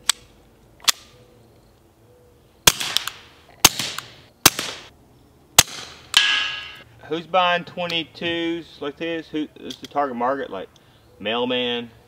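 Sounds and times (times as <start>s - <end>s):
pistol shots with echo: 2.7s - 4.9s.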